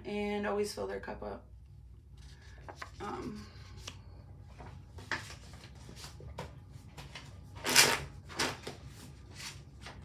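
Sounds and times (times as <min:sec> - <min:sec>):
cards rustling: 0:02.2 - 0:10.0.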